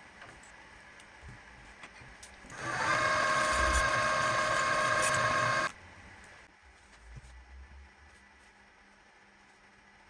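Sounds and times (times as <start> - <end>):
milling machine motor whining: 2.5 - 5.7.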